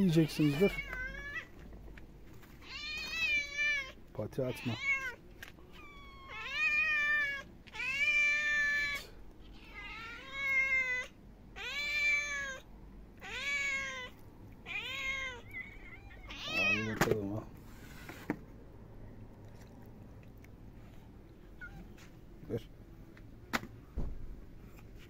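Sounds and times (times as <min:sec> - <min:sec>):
cat meowing: 0:00.2 - 0:01.6, 0:02.6 - 0:17.1, 0:21.5 - 0:22.0.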